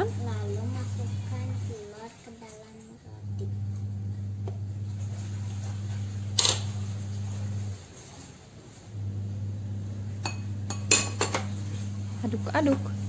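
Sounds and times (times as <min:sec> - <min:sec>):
low hum: 0:03.2 - 0:07.8, 0:08.9 - 0:13.0.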